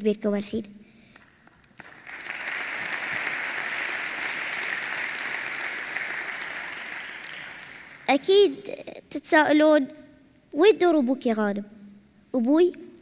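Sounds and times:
audience applauding: 1.2 - 8.2.

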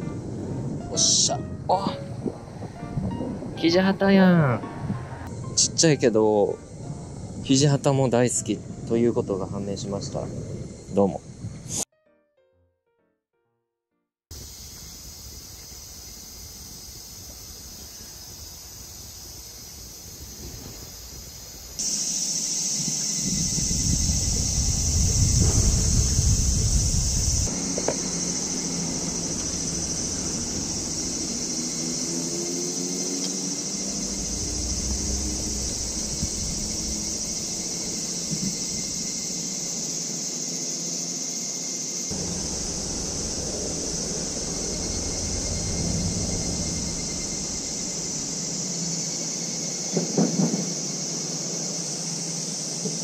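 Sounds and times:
cicadas chorus: 0.0 - 11.8, 14.3 - 53.0
wind buffeting microphone: 0.0 - 11.8, 22.8 - 28.3, 33.8 - 39.1, 42.1 - 49.0
high-pitched insect drone: 0.2 - 11.8, 14.3 - 53.0
low rumble: 23.4 - 32.1, 33.6 - 39.2, 42.1 - 49.2.

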